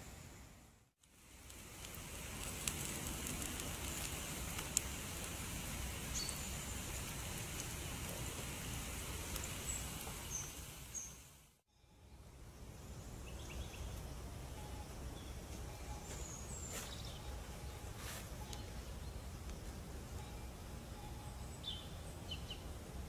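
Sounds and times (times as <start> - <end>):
steady hiss: 0.0 - 11.6
bird chirps: 6.1 - 6.7, 9.6 - 19.4, 20.2 - 22.7.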